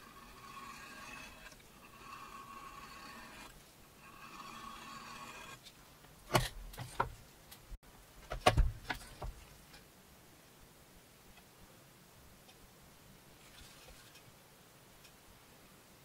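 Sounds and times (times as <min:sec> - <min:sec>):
hand tool scraping leather: 0:00.0 - 0:07.1.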